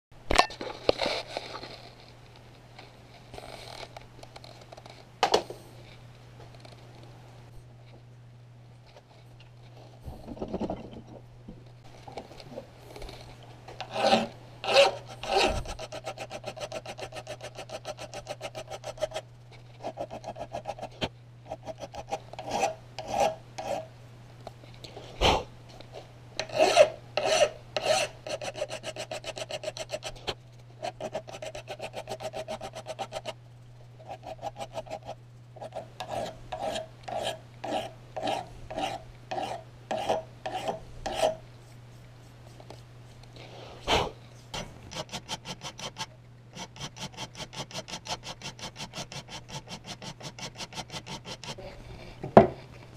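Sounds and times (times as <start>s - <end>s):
hand file rasping on steel: 13.8s - 23.9s, 26.4s - 33.4s, 34.0s - 41.4s, 44.6s - 51.7s.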